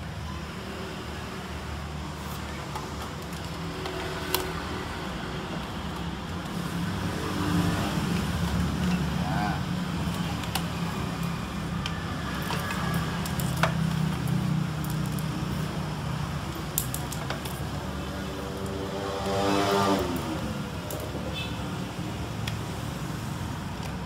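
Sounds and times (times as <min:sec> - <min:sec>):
motor vehicle passing: 0:18.2 - 0:20.7.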